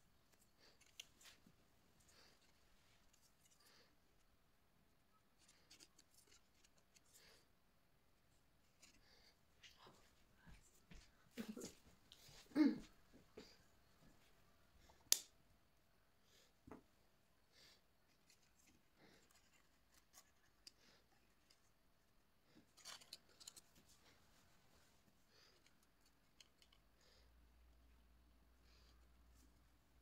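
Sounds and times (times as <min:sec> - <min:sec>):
paper rustling: 0:05.4 - 0:07.3.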